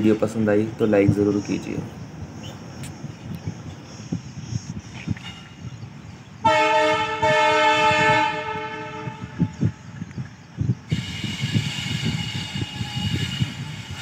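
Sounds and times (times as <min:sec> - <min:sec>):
diesel locomotives rumbling: 0:00.0 - 0:14.0
locomotive horn blasts: 0:06.4 - 0:09.6.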